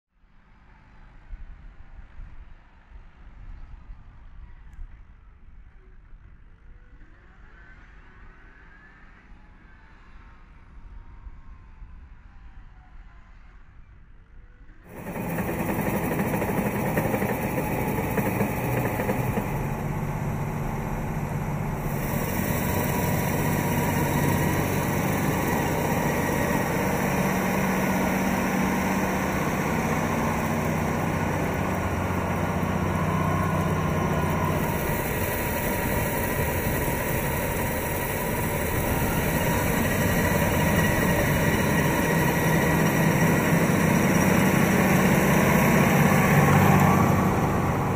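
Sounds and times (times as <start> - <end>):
tractor diesel engine running: 14.9 - 47.9.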